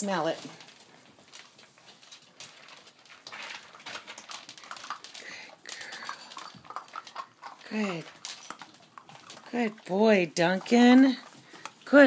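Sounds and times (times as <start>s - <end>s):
puppies eating from a bowl: 0.0s - 12.0s.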